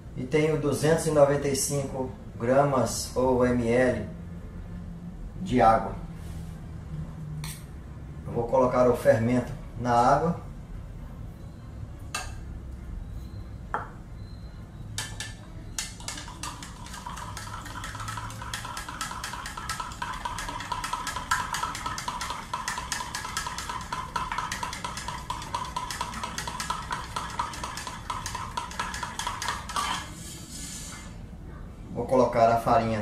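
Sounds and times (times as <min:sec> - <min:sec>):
spoon clinking in plastic jug: 0:15.0 - 0:30.1.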